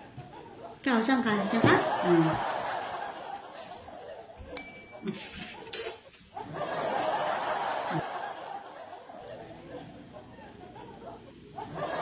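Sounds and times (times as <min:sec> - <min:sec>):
ceramic plate clinking: 0:04.6 - 0:06.0.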